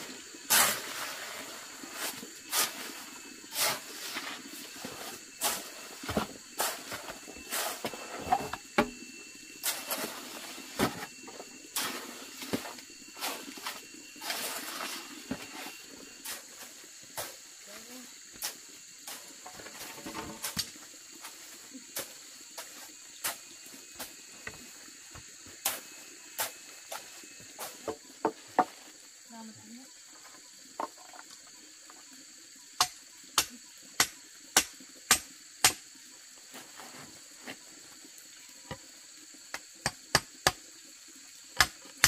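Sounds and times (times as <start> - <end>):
steady high-pitched drone: 0.0 - 27.9.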